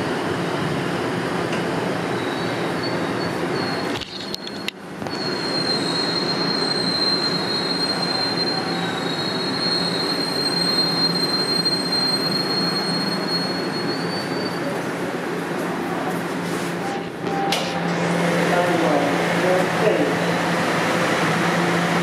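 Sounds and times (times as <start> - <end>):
subway car rumbling: 0.0 - 22.0
high-pitched wheel squeal: 2.1 - 14.8.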